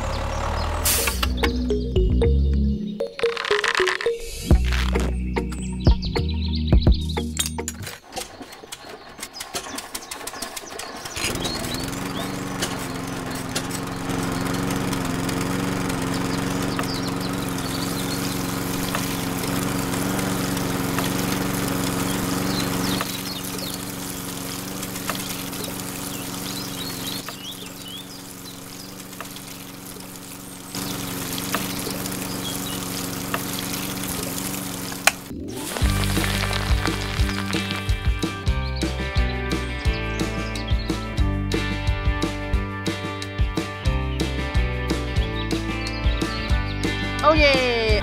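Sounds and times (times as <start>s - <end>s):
small toy engine running: 8.4s - 38.1s
water pouring and splashing: 11.3s - 38.2s.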